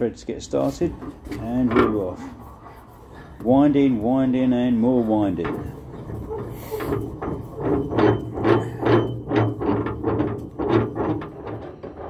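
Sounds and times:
metal handle clicking and knocking: 0:05.0 - 0:12.0.

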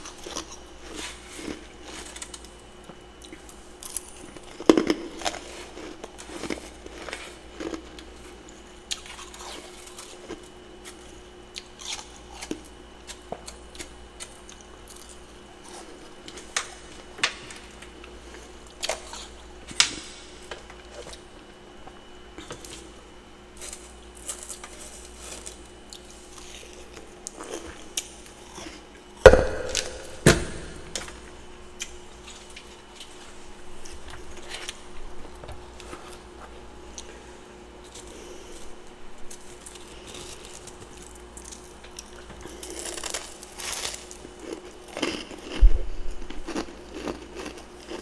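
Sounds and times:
faint steady hum: 0:00.0 - 0:48.0
freezer door thumping shut: 0:29.3 - 0:31.0.

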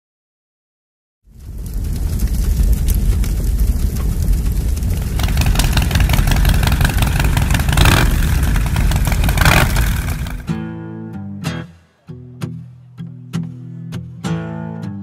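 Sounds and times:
car engine rumbling: 0:03.8 - 0:10.5.

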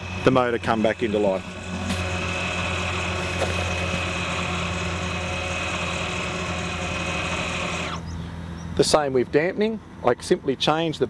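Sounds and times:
electric pump motor whining: 0:00.0 - 0:08.2.

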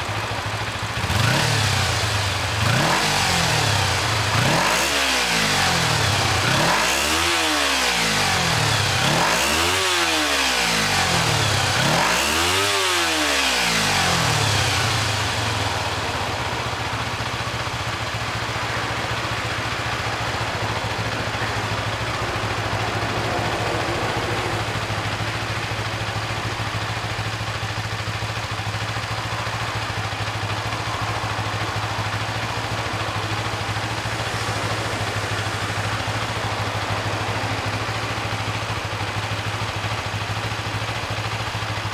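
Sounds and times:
motorcycle engine revving and idling: 0:00.0 - 0:41.9.

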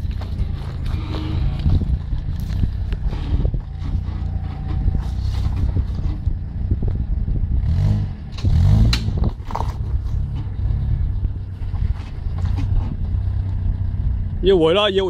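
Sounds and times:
engine running at low revs: 0:00.0 - 0:15.0
stones knocking under tyres: 0:08.4 - 0:10.7.

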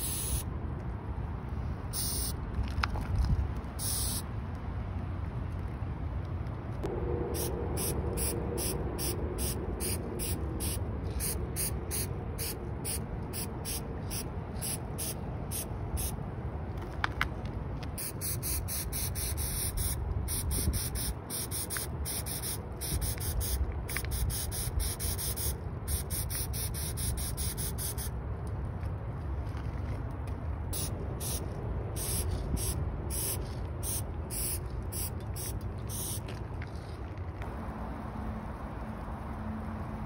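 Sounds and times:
spray paint can hissing: 0:00.0 - 0:00.5, 0:01.9 - 0:02.4, 0:03.8 - 0:04.3, 0:07.3 - 0:16.2, 0:18.0 - 0:28.2, 0:30.8 - 0:36.4.

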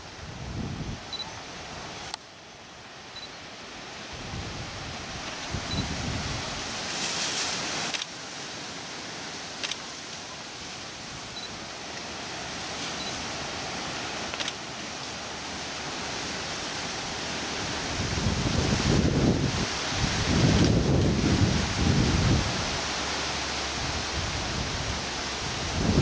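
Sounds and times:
steady outdoor hiss: 0:00.0 - 0:26.0
wind buffeting microphone: 0:00.1 - 0:01.2, 0:04.1 - 0:06.8, 0:17.7 - 0:23.0, 0:23.7 - 0:26.0.

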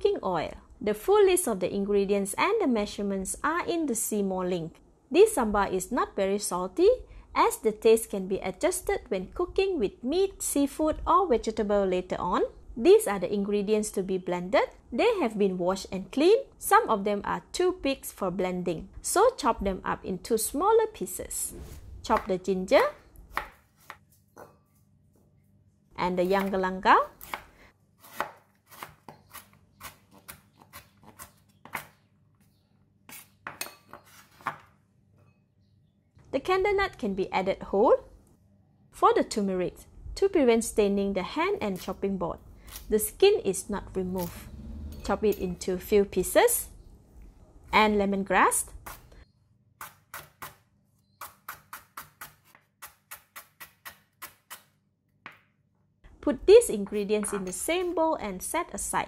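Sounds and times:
knife chopping on wooden board: 0:23.3 - 0:24.6, 0:27.1 - 0:32.0, 0:33.1 - 0:34.7, 0:51.2 - 0:54.7.

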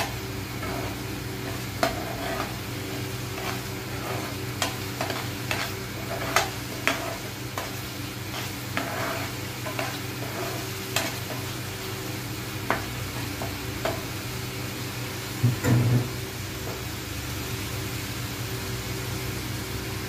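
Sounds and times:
spatula scraping a frying pan: 0:00.0 - 0:14.0
light sizzle of frying: 0:00.0 - 0:20.0.

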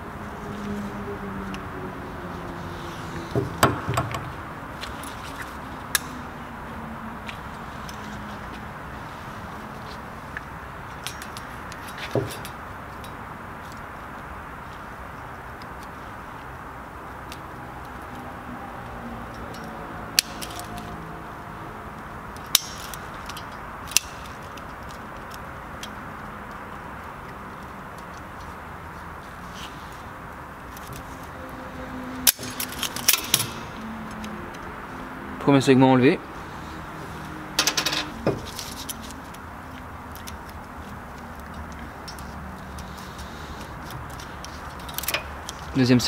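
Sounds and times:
sharp metal clicks: 0:19.3 - 0:21.0, 0:22.4 - 0:26.6, 0:32.2 - 0:34.7.

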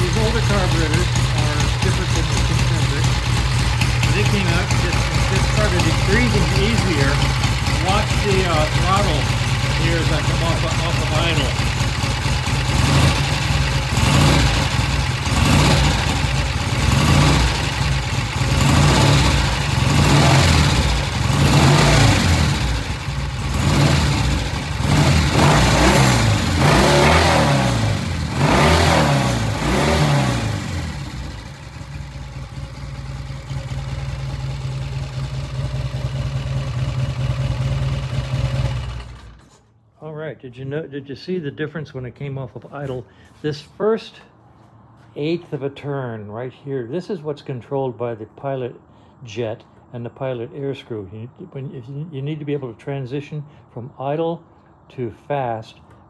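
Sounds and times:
motorcycle engine revving and idling: 0:00.0 - 0:39.6.

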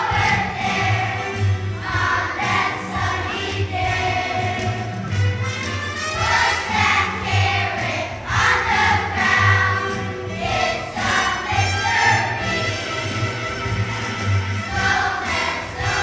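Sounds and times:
children's choir singing: 0:00.0 - 0:05.2, 0:06.1 - 0:13.3, 0:14.2 - 0:16.0
instrumental accompaniment: 0:00.0 - 0:16.0.

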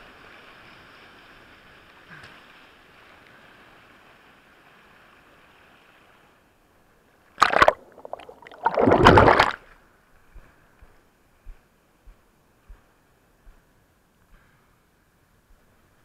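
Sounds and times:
surf washing: 0:00.0 - 0:09.7
water splashing against camera: 0:07.4 - 0:09.8.

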